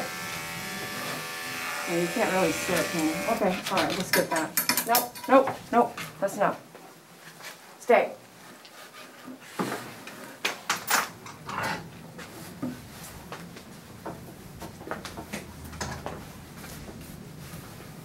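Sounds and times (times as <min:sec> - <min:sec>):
knocks and clatters: 0:03.5 - 0:05.4.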